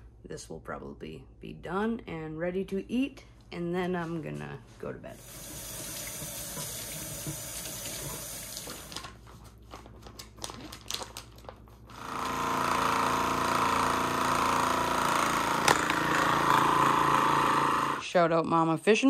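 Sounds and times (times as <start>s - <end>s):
faucet running water: 5.2s - 8.9s
plastic bag rustling: 8.0s - 11.9s
vacuum sealer pump running: 11.8s - 18.1s.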